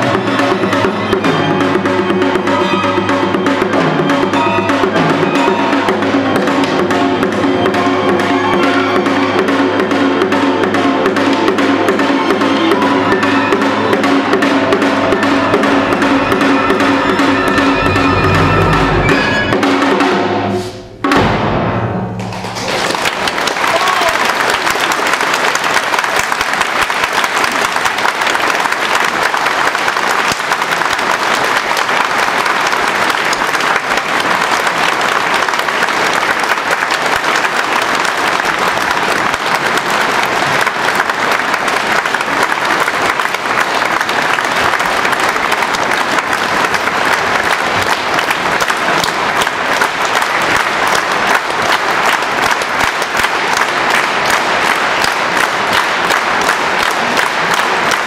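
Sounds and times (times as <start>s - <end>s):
audience applauding: 22.2s - 58.0s.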